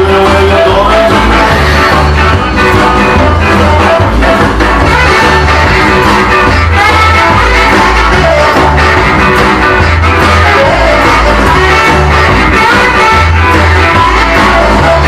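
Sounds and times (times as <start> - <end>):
rock and roll music with guitar: 0.0 - 15.0.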